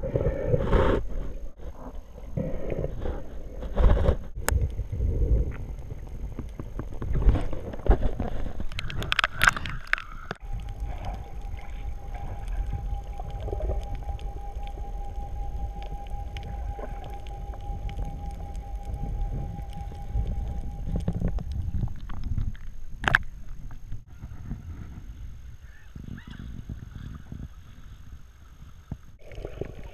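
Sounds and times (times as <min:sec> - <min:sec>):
splashing and bubbling: 0:00.0 - 0:24.0, 0:29.1 - 0:29.9
low underwater rumble: 0:00.0 - 0:29.9
steady high hum: 0:10.4 - 0:24.7.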